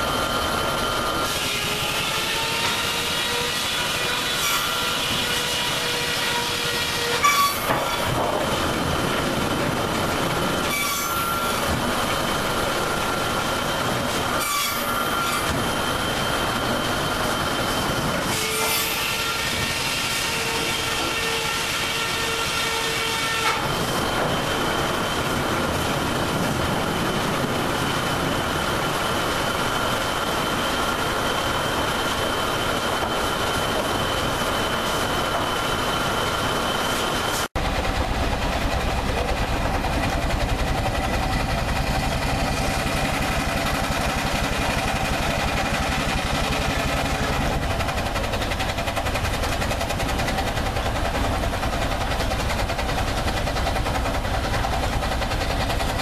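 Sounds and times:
sawmill machinery whining: 0.0 - 56.0
low engine rumble: 37.6 - 56.0.

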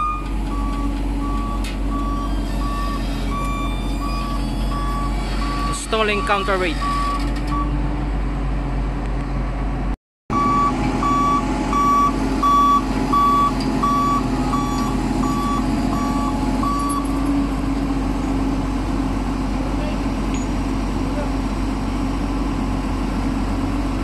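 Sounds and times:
motion warning beeper: 0.0 - 7.7, 10.3 - 17.1
heavy diesel machinery running: 0.0 - 24.0.

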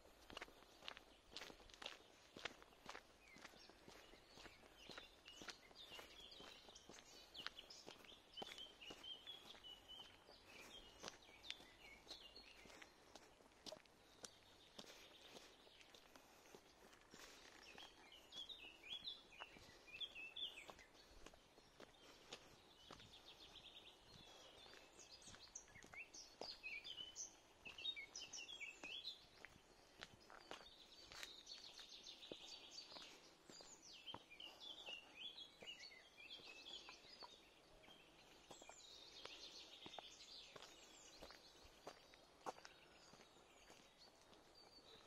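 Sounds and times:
songbirds singing: 0.0 - 45.0.

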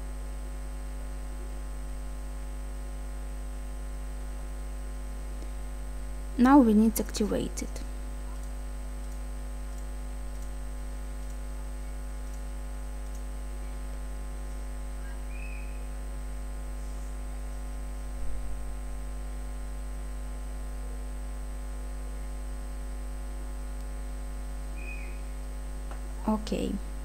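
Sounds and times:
electrical mains hum: 0.0 - 27.0
mouse click: 8.3 - 10.6, 12.2 - 13.3.

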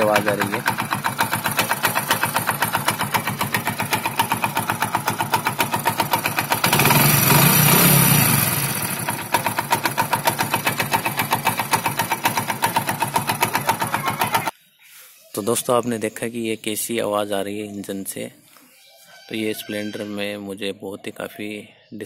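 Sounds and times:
motorcycle engine idling: 0.0 - 14.5
strange engine noise: 0.0 - 14.5.

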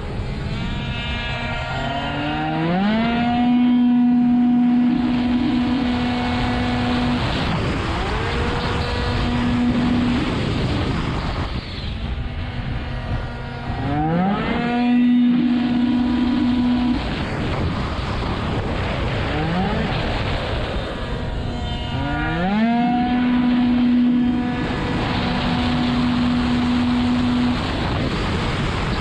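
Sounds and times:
two-stroke scooter engine racing: 0.0 - 29.0
wind and road rush: 0.0 - 29.0.

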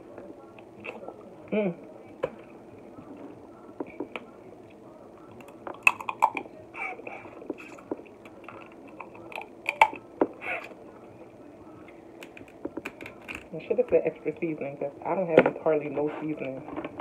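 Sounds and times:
chewing and smacking: 3.1 - 6.5
crab legs clicking and snapping: 5.4 - 6.5.

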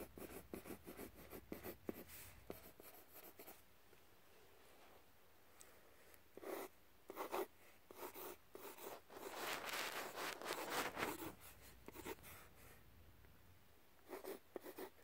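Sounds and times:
pencil scratching on paper: 0.0 - 3.6, 6.4 - 12.8, 14.0 - 15.0.

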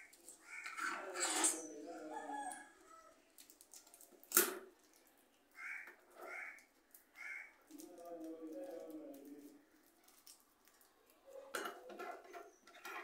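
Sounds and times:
crows cawing: 0.4 - 0.8, 5.6 - 7.6
rooster crowing: 1.9 - 3.2.

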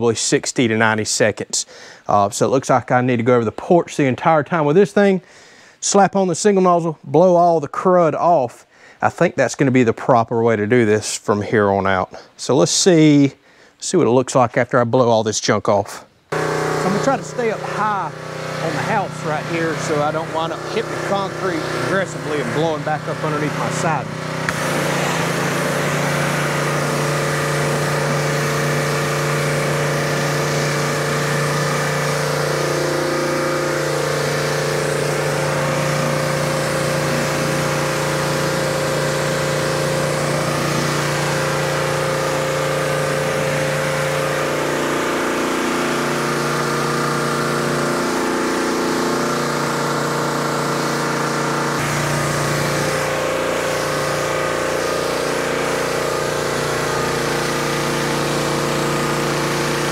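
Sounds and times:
pressure washer engine running: 16.3 - 59.9
water jet hissing on concrete: 16.3 - 59.9.

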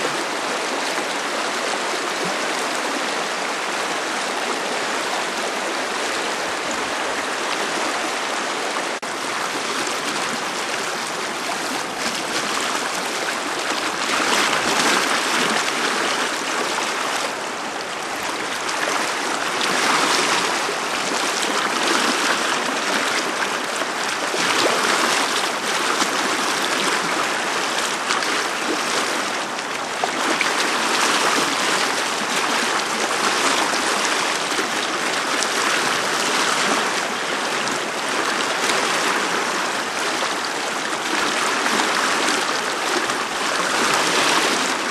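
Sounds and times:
river rapids rushing over stones: 0.0 - 44.9.

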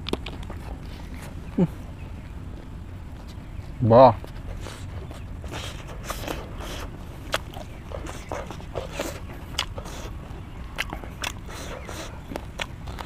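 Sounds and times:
crunchy chewing: 0.0 - 13.0
steady low rumble: 0.0 - 13.0
mouth clicks: 5.1 - 13.0.

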